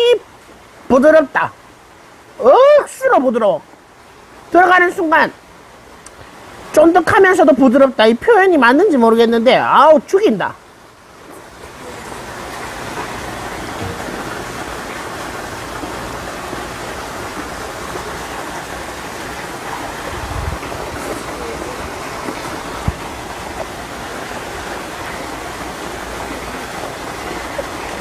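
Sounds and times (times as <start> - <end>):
rushing water: 0.0 - 28.0
soft knocks: 13.7 - 14.3.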